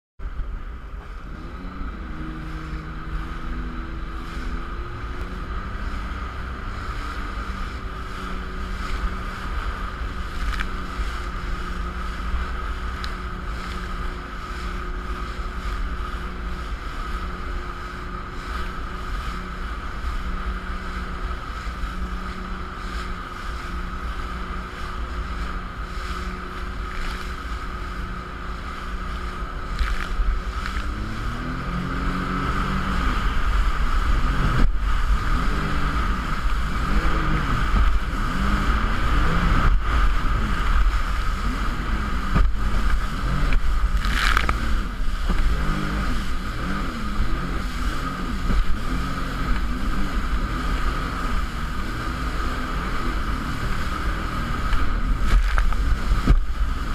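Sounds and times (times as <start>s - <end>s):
jet ski engine running: 0.2s - 56.9s
water rushing past hull: 0.2s - 56.9s
wind rumble on microphone: 0.2s - 56.9s.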